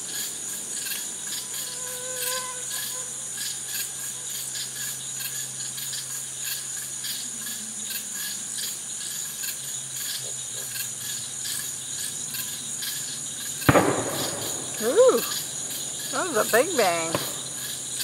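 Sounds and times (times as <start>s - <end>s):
night insects chirping: 0.0s - 18.0s
firework bang: 13.6s - 18.0s.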